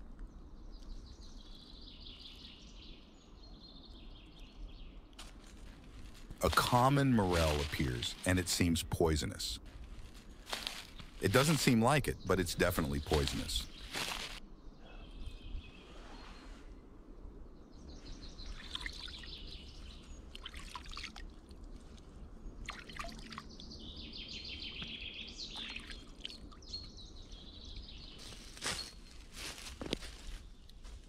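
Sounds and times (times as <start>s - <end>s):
songbirds singing: 0.0s - 31.0s
water trickling and dripping: 20.3s - 23.5s.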